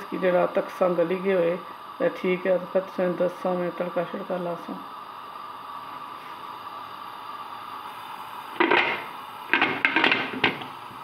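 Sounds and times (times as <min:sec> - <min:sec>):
metal lid clatter: 0:08.6 - 0:10.6.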